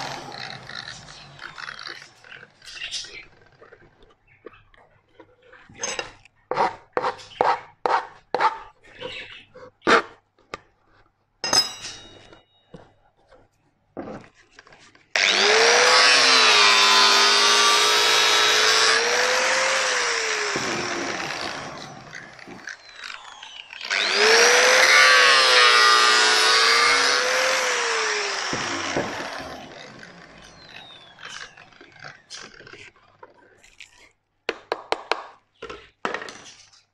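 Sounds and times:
angle grinder grinding metal: 0:00.0 - 0:03.2, 0:15.2 - 0:32.5.

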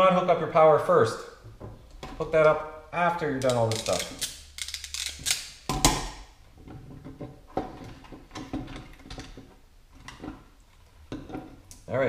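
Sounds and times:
wires being handled: 0:03.3 - 0:11.9
crimping tool clicks: 0:03.4 - 0:05.5.

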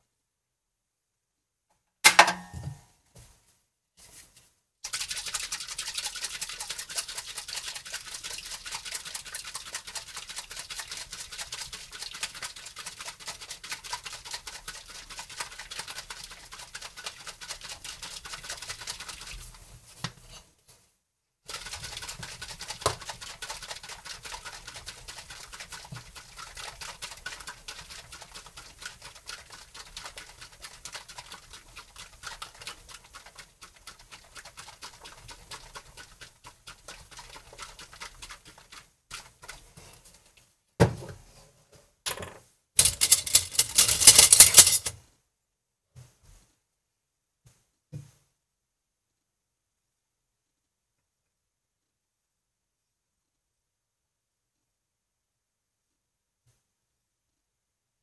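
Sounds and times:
whisk beating cream in a bowl: 0:04.8 - 0:19.7, 0:21.5 - 0:40.4.

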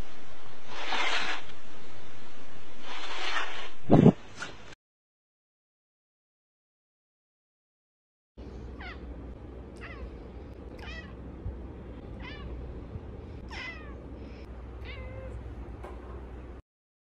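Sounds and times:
steady low hum: 0:08.4 - 0:16.6
cat meowing: 0:09.8 - 0:10.1, 0:10.8 - 0:11.2, 0:12.2 - 0:12.6, 0:13.5 - 0:14.0, 0:14.8 - 0:15.4.

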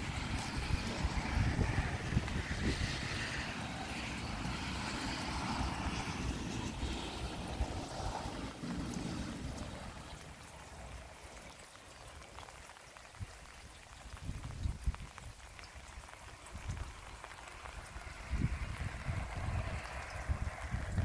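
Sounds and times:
wind buffeting microphone: 0:00.0 - 0:10.5, 0:13.2 - 0:21.0
rain pattering: 0:00.0 - 0:21.0.

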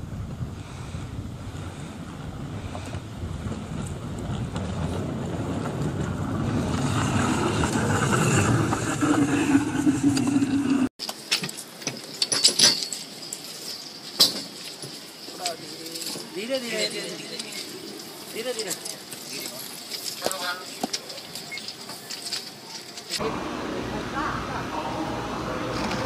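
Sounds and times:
rail cycle wheels rumbling on rails: 0:00.0 - 0:12.0
steady hum: 0:19.0 - 0:26.0.

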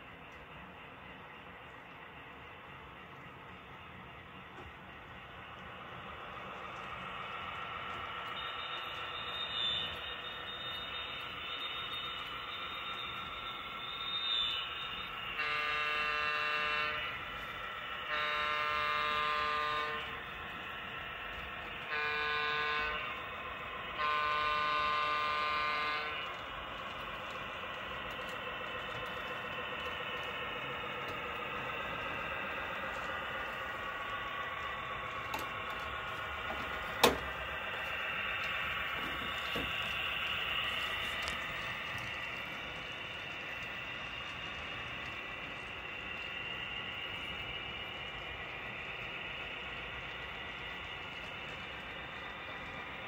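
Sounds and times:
model locomotive running: 0:00.0 - 0:53.0
model train horn blasts: 0:15.0 - 0:20.4, 0:21.8 - 0:26.4.

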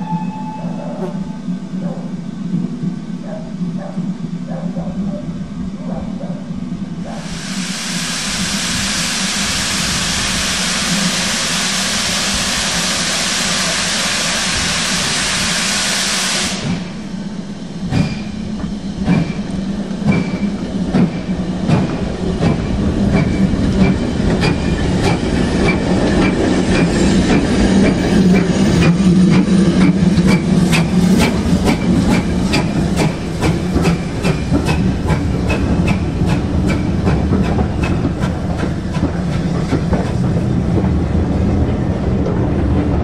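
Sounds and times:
steam hissing: 0:07.2 - 0:40.4
locomotive wheels clanking: 0:17.9 - 0:43.0.

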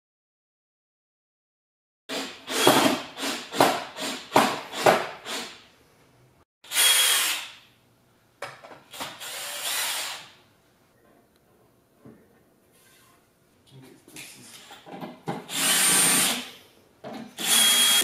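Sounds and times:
cordless drill running: 0:06.7 - 0:07.6, 0:09.2 - 0:10.3, 0:15.5 - 0:16.5, 0:17.4 - 0:18.0.

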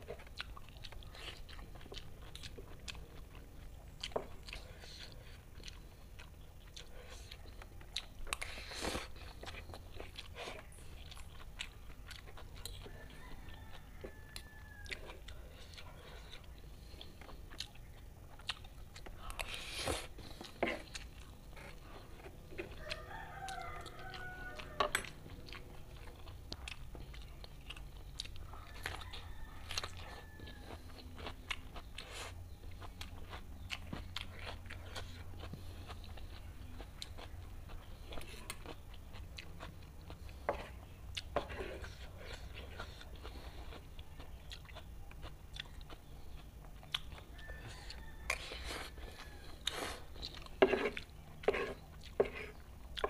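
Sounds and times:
person chewing noodles: 0:00.0 - 0:53.0
rooster crowing: 0:12.8 - 0:15.3, 0:22.6 - 0:25.2, 0:28.4 - 0:31.3, 0:47.2 - 0:49.8.

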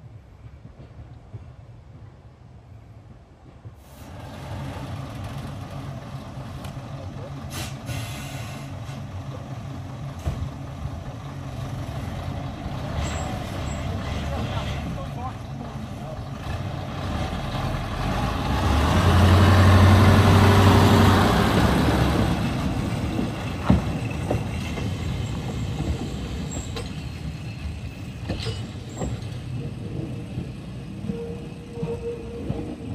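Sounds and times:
diesel locomotive engine: 0:00.0 - 0:32.9
train wheels clacking: 0:22.2 - 0:32.9.

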